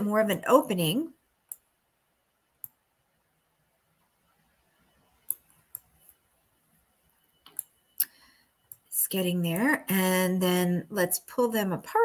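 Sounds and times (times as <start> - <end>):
computer mouse clicks: 1.5 - 1.7, 2.6 - 2.8.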